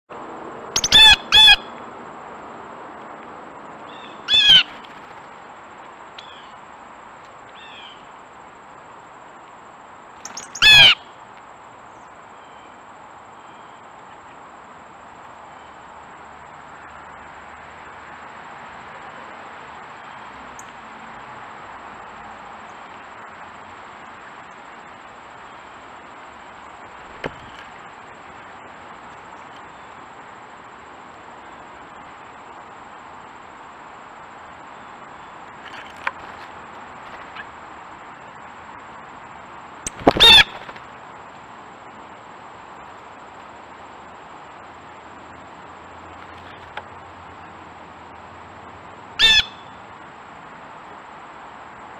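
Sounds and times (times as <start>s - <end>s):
steady background hiss: 0.1s - 51.9s
blue jays calling: 0.8s - 1.8s, 3.9s - 5.0s, 10.2s - 11.1s, 39.9s - 40.9s, 49.2s - 49.8s.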